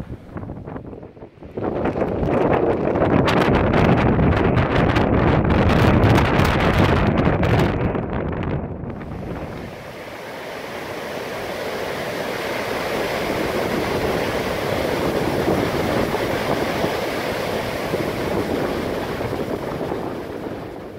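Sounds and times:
wind gusts on microphone: 0.0 - 20.9
waterfall rushing: 9.0 - 20.7.

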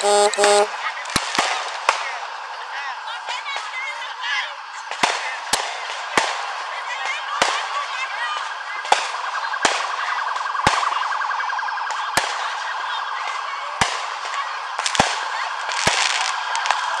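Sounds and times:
background din: 0.0 - 0.7
firework shells bursting: 0.0 - 2.0, 14.8 - 17.0.

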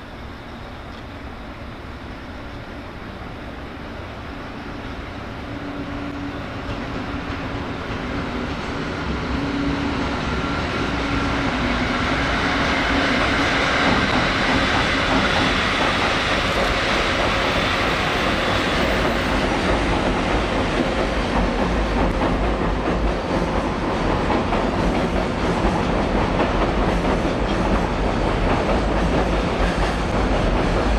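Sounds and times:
freight train passing: 0.0 - 30.9
wheels clacking over rail joints: 11.5 - 30.9.

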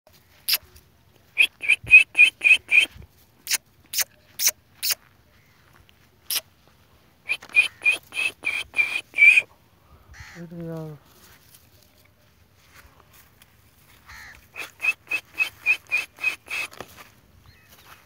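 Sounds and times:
crows cawing: 10.1 - 10.5, 14.0 - 14.7.

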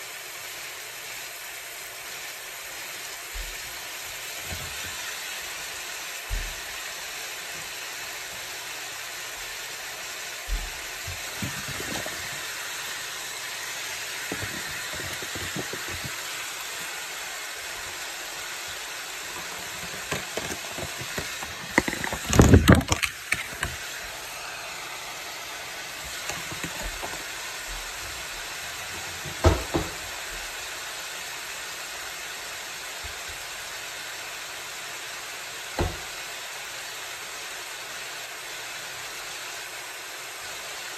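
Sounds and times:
meat sizzling in a frying pan: 0.0 - 40.9
vegetables clattering into pan: 10.9 - 17.4, 18.4 - 24.0, 26.0 - 27.5
utensil knocking on pan: 14.3 - 16.2.

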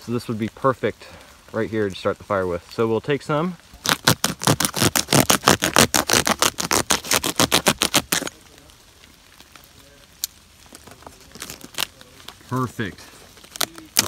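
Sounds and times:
blade scraping dry wood: 3.9 - 8.4.

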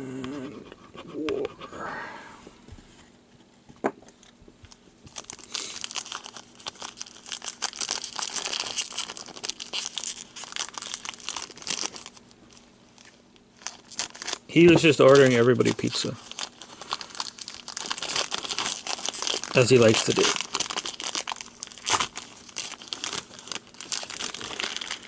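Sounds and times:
foil pack crinkling: 5.1 - 25.0.

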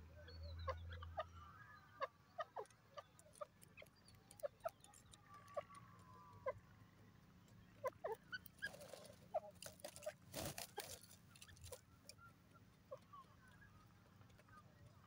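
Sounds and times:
rustling: 8.6 - 11.8.

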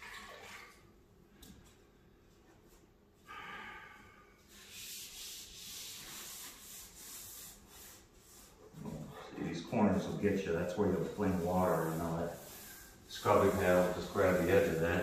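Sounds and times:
wet pad scrubbing wood: 4.6 - 15.0.

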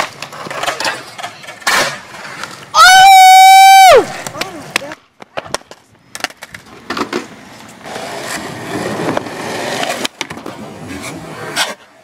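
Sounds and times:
skateboard wheels rolling on concrete: 0.0 - 12.0
skateboard scraping a ledge: 6.7 - 12.0.

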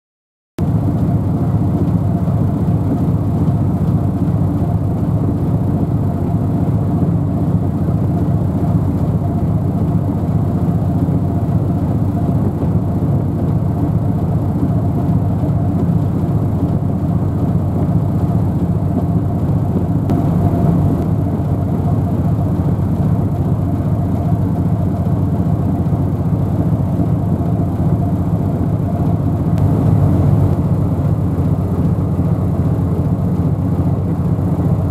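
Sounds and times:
low engine rumble: 0.6 - 34.9
faint hum: 17.3 - 34.9.

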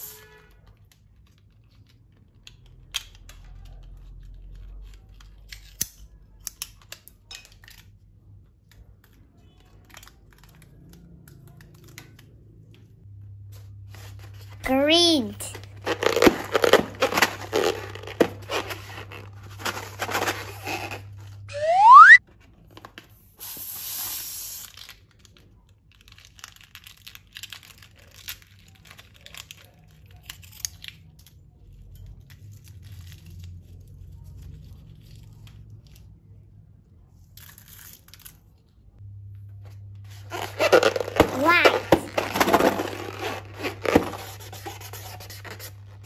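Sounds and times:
balloons crinkling and tearing: 15.6 - 21.4, 24.2 - 31.3, 40.1 - 46.0
rising whistle: 21.5 - 22.2.

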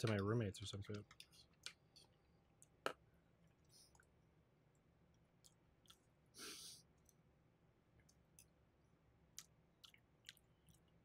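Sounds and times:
mouth clicks while chewing: 9.3 - 11.0.

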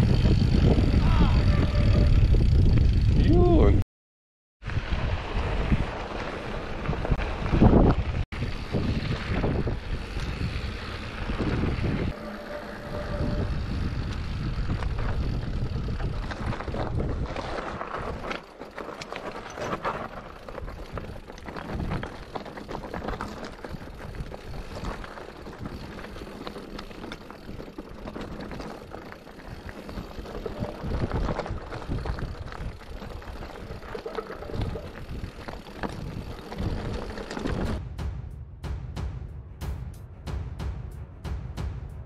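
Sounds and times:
bike rattling and clicking: 0.0 - 3.4, 4.7 - 37.8
bike tyres rolling over stones: 4.6 - 37.8.

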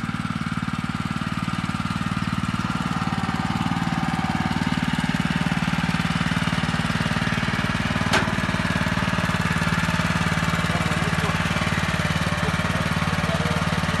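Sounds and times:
tractor engine running steadily: 0.0 - 14.0.

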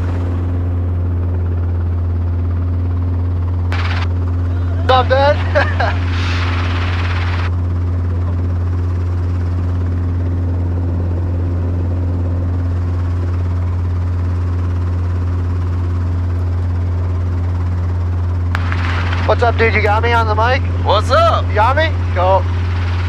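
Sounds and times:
helicopter engine hum: 0.0 - 23.0
rushing noise: 5.8 - 7.5.

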